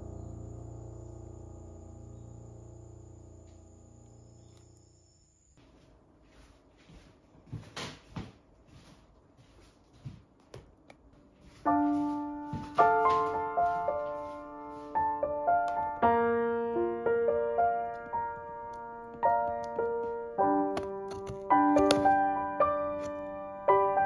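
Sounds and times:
solo piano music: 0:00.0 - 0:05.3, 0:11.6 - 0:24.0.

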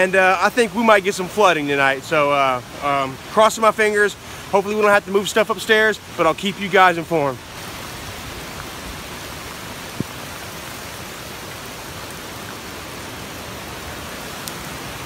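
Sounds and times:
heavy rain pouring: 0:00.0 - 0:15.0
gusty wind: 0:07.4 - 0:11.8.

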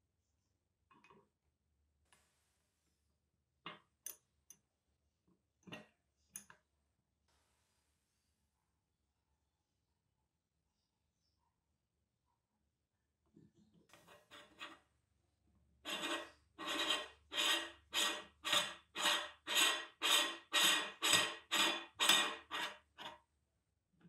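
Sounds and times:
faint metal scrapes: 0:13.9 - 0:14.9, 0:15.8 - 0:23.2
metal grating on metal threads: 0:15.9 - 0:23.2.

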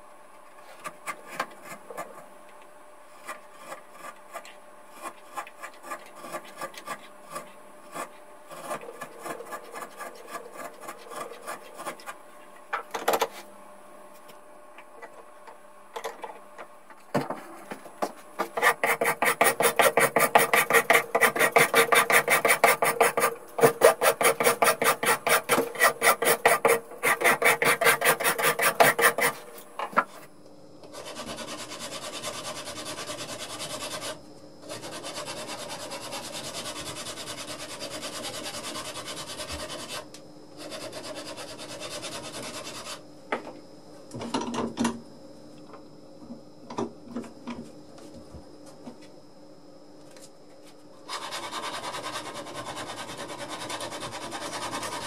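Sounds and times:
knife scraping wood: 0:00.6 - 0:02.3, 0:03.1 - 0:12.2, 0:18.4 - 0:30.2
hand rasp filing wood: 0:03.1 - 0:12.2, 0:18.4 - 0:29.6, 0:31.0 - 0:43.0, 0:51.1 - 0:55.0.

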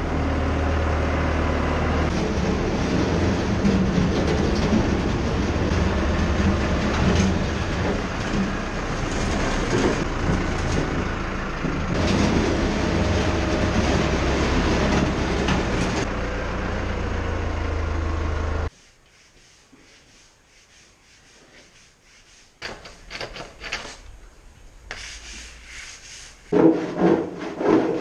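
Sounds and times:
tractor diesel engine running: 0:00.0 - 0:18.7
bucket scraping on concrete: 0:25.2 - 0:28.0.

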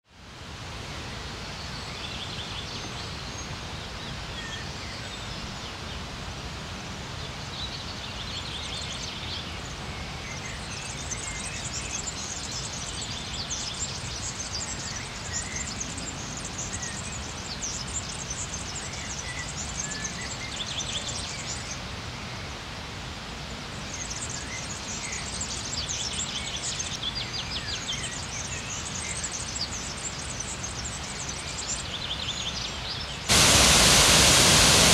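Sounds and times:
birds singing: 0:07.5 - 0:21.9, 0:23.9 - 0:34.9
rushing background noise: 0:33.3 - 0:34.9.

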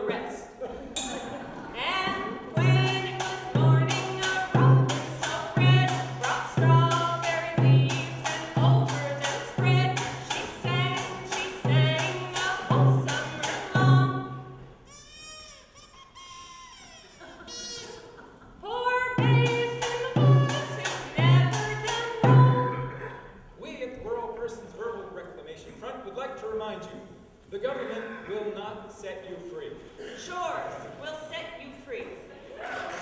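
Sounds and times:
person singing: 0:01.9 - 0:14.2, 0:18.8 - 0:23.1.

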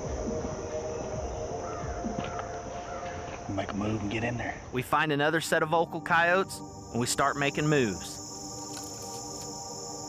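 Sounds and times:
background music of held notes: 0:00.0 - 0:10.0
crickets buzzing: 0:00.0 - 0:10.0.

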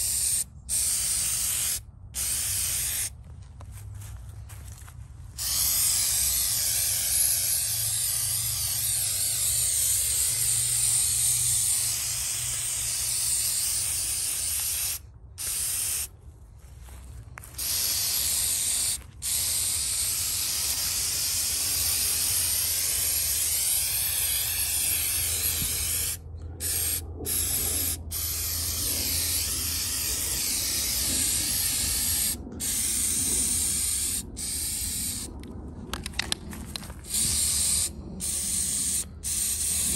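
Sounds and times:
aerosol can spraying: 0:00.0 - 0:03.1, 0:05.4 - 0:16.1, 0:17.6 - 0:35.3, 0:37.0 - 0:39.9.

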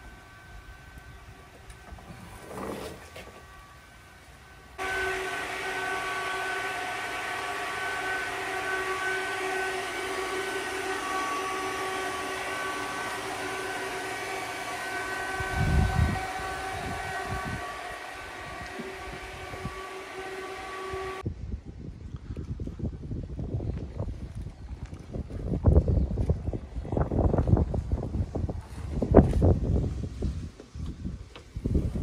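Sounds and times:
mechanical drone with held tones: 0:00.0 - 0:21.3.

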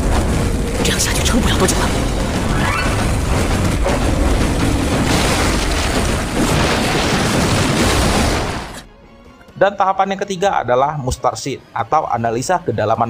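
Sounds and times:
cartoon explosions: 0:00.0 - 0:08.9
background music: 0:00.0 - 0:13.0.

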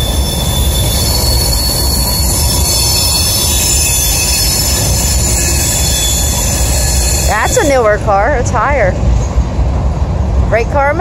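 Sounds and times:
high wheel squeal: 0:00.0 - 0:08.1
freight train wheels rumbling on rail: 0:00.0 - 0:11.0.

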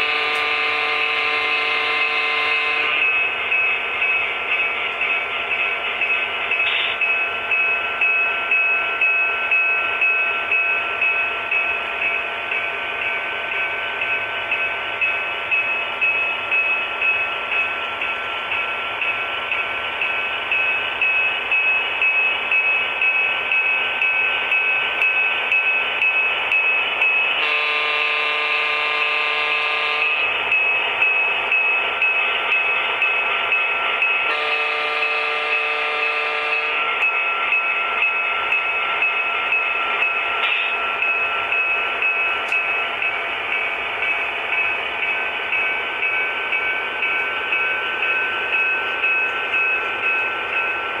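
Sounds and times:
train horn blasts: 0:00.0 - 0:03.0, 0:27.4 - 0:30.3, 0:34.3 - 0:36.8.

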